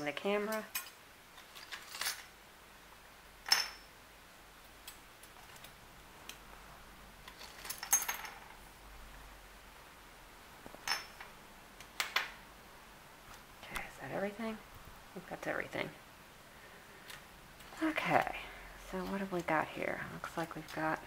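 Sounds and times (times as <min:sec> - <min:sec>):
silver jewelry clattering on table: 0:03.4 - 0:03.9, 0:07.2 - 0:08.6, 0:10.8 - 0:11.3.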